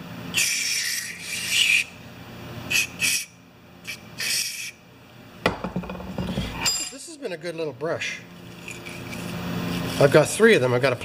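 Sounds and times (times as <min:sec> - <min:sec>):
knock: 0:05.5 - 0:06.5.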